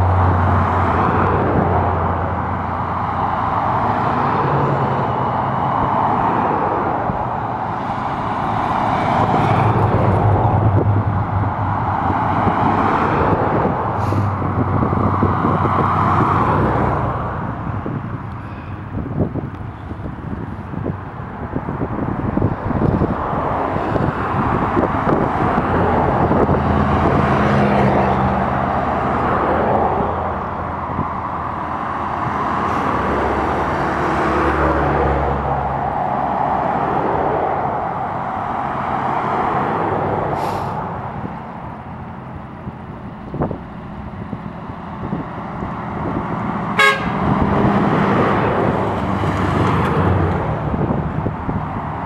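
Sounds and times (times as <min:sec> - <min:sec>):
car engines passing: 0:00.0 - 0:52.0
short car horn toot: 0:46.8 - 0:47.2.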